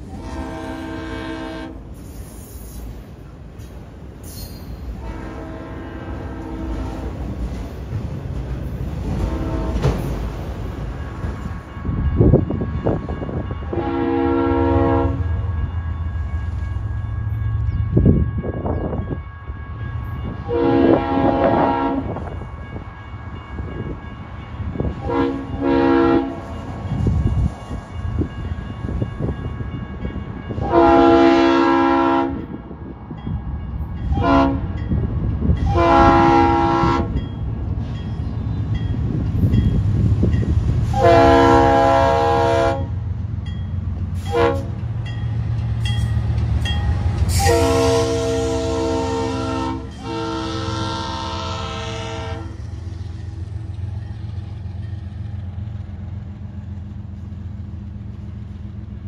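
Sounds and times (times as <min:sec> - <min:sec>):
locomotive air horn blasts: 0:00.0 - 0:02.0, 0:04.9 - 0:07.2, 0:09.1 - 0:10.1, 0:11.8 - 0:15.5, 0:20.3 - 0:22.3, 0:24.8 - 0:26.5, 0:30.6 - 0:32.6, 0:34.1 - 0:34.8, 0:35.6 - 0:37.2, 0:40.8 - 0:43.0, 0:44.2 - 0:44.8, 0:47.2 - 0:52.7
train rumbling: 0:00.0 - 0:59.0.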